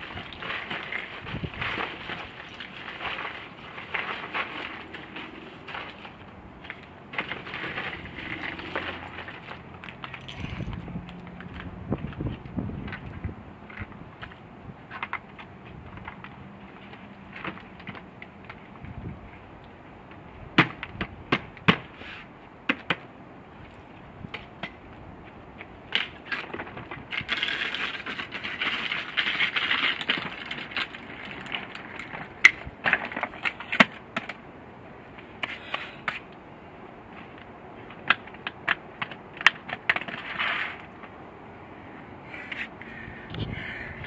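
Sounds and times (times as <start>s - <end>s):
rustling: 0.0s - 13.0s.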